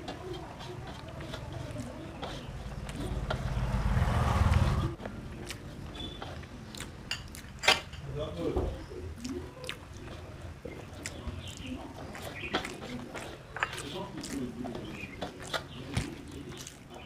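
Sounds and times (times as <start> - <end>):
fingers scraping rice on metal plate: 0.0 - 3.4
low rumble: 2.5 - 5.0
person chewing: 5.1 - 7.6, 9.1 - 17.0.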